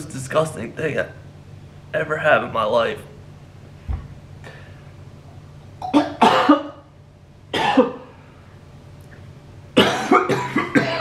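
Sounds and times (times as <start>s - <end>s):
man coughing: 5.8s - 6.9s, 7.5s - 8.2s, 9.8s - 11.0s.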